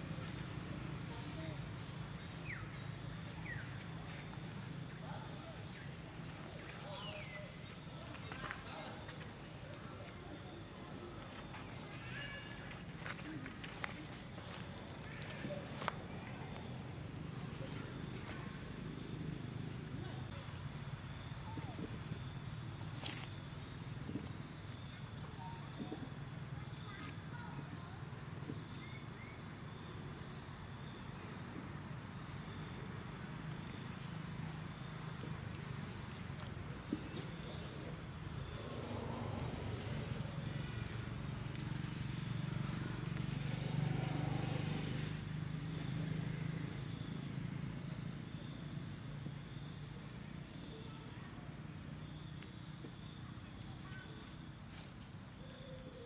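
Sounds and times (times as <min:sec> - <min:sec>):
high insect drone: 0:10.5 - 0:56.0
fast insect chirping: 0:33.2 - 0:52.5.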